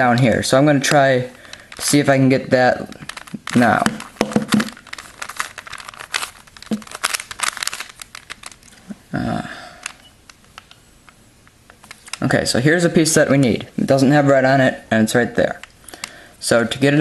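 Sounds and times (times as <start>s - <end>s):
puzzle cube clicking and rattling: 1.4s - 2.0s, 2.8s - 8.8s, 9.8s - 11.2s, 11.8s - 12.3s.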